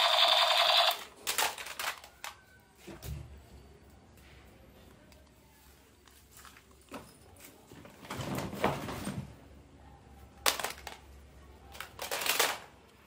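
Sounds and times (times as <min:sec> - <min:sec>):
plastic toys clattering: 0:00.4 - 0:02.6, 0:10.3 - 0:13.0.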